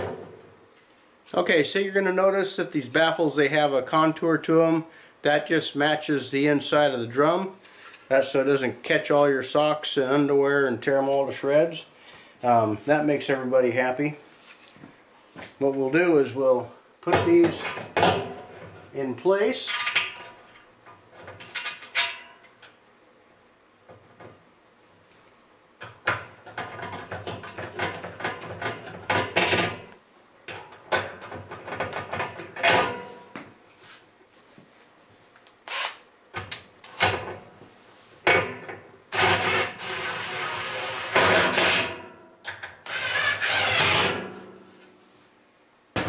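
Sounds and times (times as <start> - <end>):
cordless drill running: 35.7 - 36.0, 39.2 - 41.2, 42.9 - 43.8.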